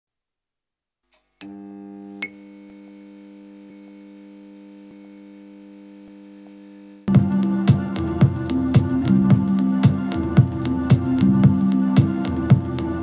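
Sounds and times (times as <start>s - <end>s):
low electronic drone chord: 7.1s - 13.0s.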